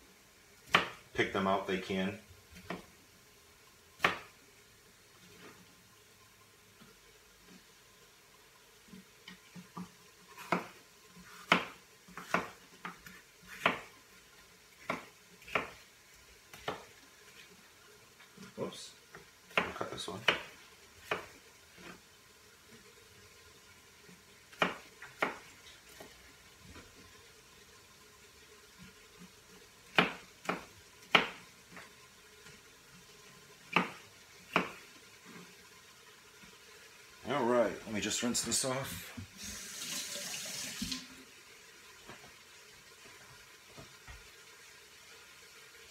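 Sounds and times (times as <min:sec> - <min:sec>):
knife chopping on cutting board: 0:00.7 - 0:01.0, 0:04.0 - 0:04.3, 0:10.4 - 0:13.9, 0:14.8 - 0:15.8, 0:19.5 - 0:21.3, 0:24.5 - 0:26.1, 0:29.9 - 0:31.4, 0:33.7 - 0:34.8.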